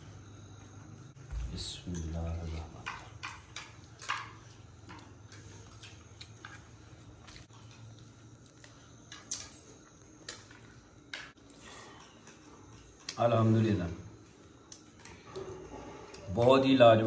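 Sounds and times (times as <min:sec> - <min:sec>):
chewing: 0:02.2 - 0:13.2.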